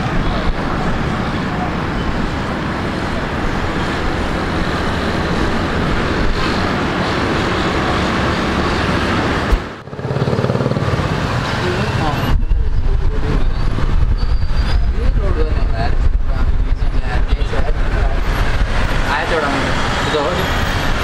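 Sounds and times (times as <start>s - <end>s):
jet engines rumbling: 0.0s - 21.0s.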